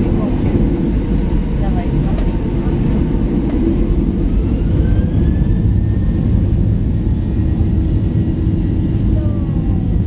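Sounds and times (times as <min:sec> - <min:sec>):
jet engine rumble in cabin: 0:00.0 - 0:10.0
faint rising whine: 0:03.2 - 0:10.0.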